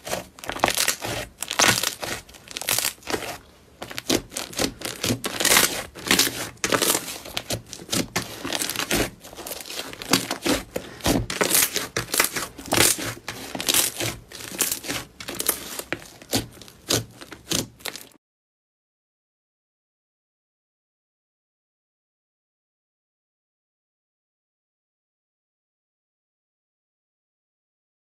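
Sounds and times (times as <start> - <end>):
slime crackling and popping: 0.1 - 18.2.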